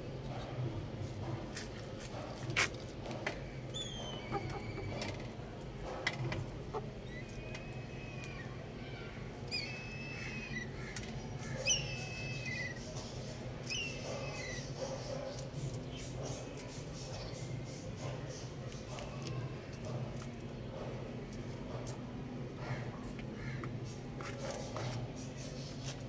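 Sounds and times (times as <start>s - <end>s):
young chickens chirping: 3.6s - 20.0s.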